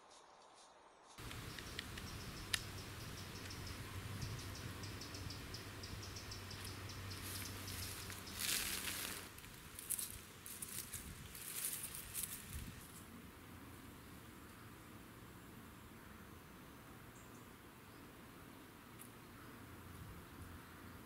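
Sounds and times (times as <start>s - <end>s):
faint high ticking: 1.2s - 8.6s
dry leaves rustling: 6.5s - 13.1s.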